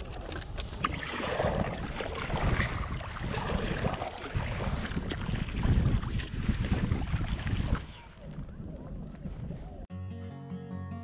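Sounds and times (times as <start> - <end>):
paddle splashing in water: 0.0 - 9.4
wind on microphone: 0.0 - 9.9.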